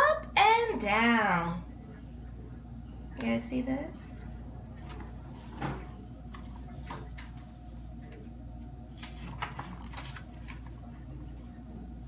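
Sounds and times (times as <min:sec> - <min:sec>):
low steady hum: 0:00.0 - 0:12.0
book pages rustling: 0:04.8 - 0:11.5.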